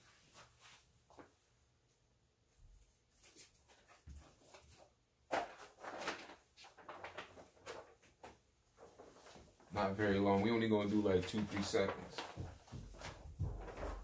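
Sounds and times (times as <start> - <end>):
faint sheet rustling: 0.0 - 4.9.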